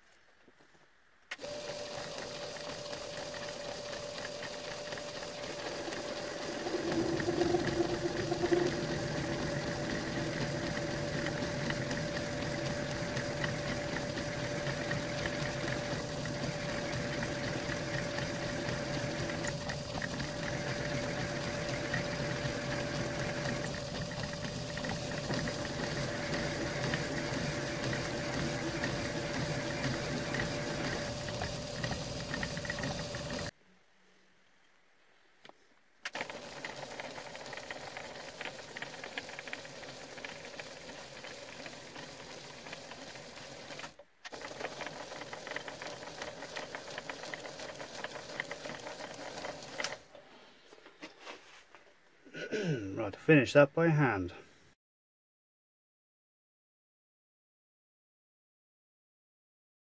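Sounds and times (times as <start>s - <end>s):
machine spindle humming: 1.3s - 33.5s, 36.1s - 50.1s
end mill cutting metal: 5.4s - 15.8s.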